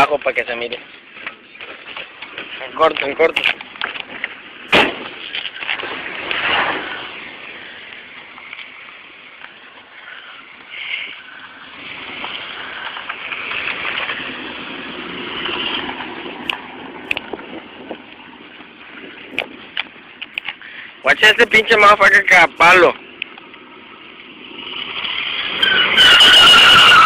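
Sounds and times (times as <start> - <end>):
truck engine and tyres: 0.0 - 27.0
sharp knock: 4.7 - 5.1.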